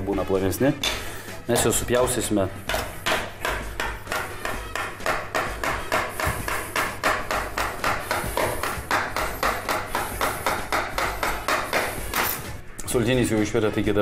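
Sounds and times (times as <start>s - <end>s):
knife chopping on steel counter: 1.5s - 12.5s.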